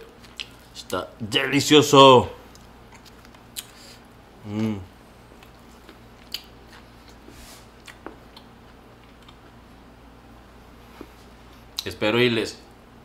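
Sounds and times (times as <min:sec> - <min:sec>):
person chewing: 0:00.0 - 0:00.8, 0:02.5 - 0:09.6
closed-mouth hum: 0:00.0 - 0:13.0.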